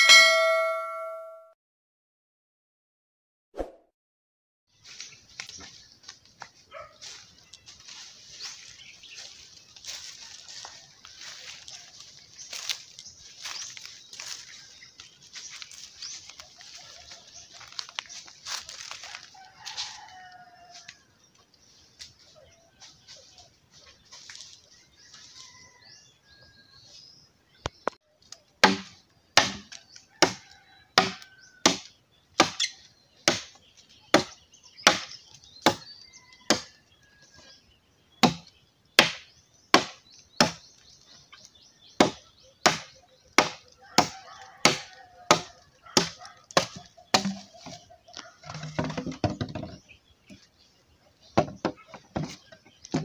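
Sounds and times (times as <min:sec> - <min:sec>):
machete chopping bamboo: 0:28.6 - 0:30.4, 0:31.0 - 0:35.8, 0:36.5 - 0:36.7, 0:38.2 - 0:40.6, 0:42.0 - 0:47.7.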